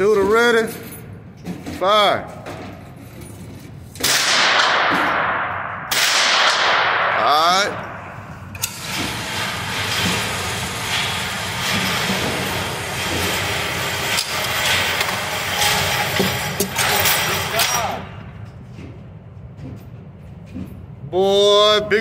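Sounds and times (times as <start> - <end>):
rifle shot echoing: 4.0 - 7.2.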